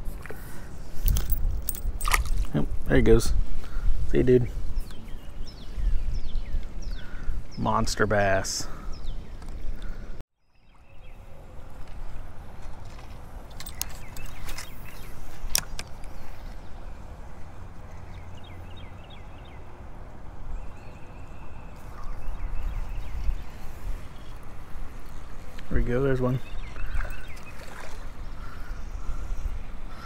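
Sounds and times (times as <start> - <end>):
handling noise: 1.0 - 2.6
creek water swishing: 21.8 - 30.0.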